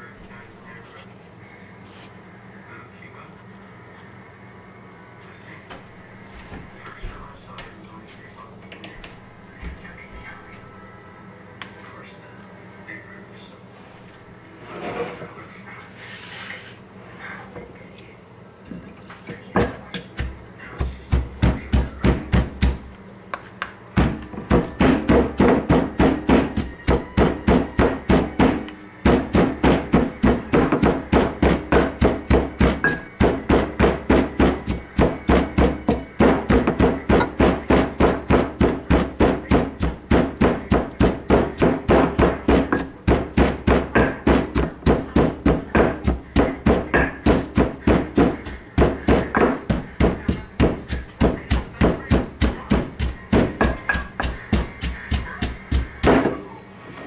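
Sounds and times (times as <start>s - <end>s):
wooden pestle pounding in mortar: 19.6s - 22.9s, 24.0s - 56.4s.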